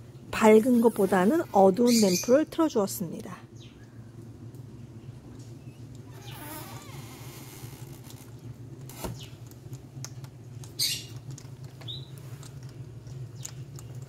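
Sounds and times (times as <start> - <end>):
hedgehogs crunching pellets: 9.2 - 14.0.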